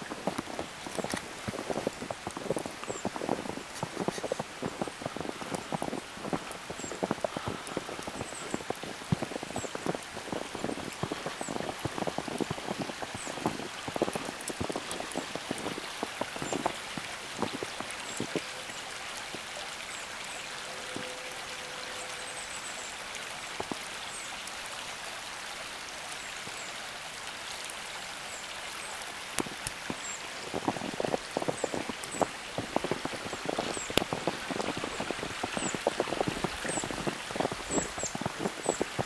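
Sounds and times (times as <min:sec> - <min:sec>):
snowstorm hiss: 0:00.0 - 0:39.0
boots crunching through snow: 0:00.1 - 0:18.4, 0:29.4 - 0:39.0.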